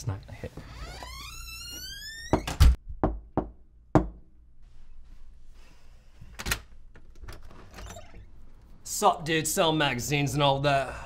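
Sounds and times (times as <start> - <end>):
door squealing: 0.6 - 2.8, 7.5 - 8.3
knocks on a door: 2.3 - 4.2.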